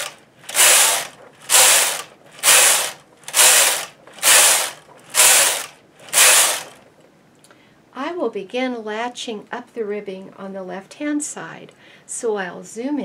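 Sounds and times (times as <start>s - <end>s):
knitting machine carriage clatter: 0.0s - 6.9s.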